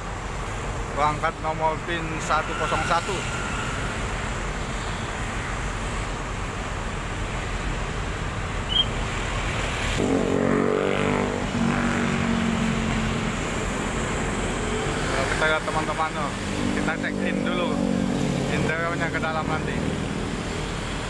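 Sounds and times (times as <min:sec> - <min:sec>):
vehicle engine rumbling: 0:00.0 - 0:21.0
louder engine note: 0:10.0 - 0:13.0.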